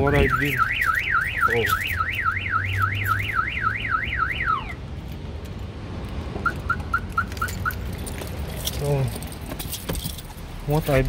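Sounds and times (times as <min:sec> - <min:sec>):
car alarm siren sweeping: 0:00.0 - 0:04.8, 0:06.4 - 0:07.9.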